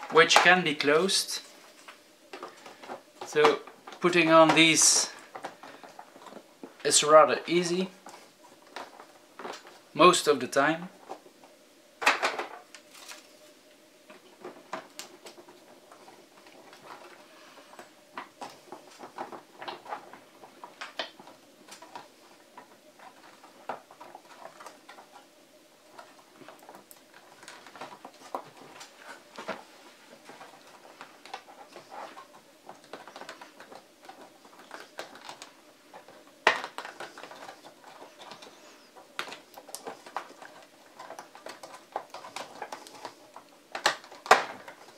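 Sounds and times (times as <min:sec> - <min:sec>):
plastic clicks and rattles: 0:30.2 - 0:44.9
plastic clack: 0:30.3 - 0:38.6.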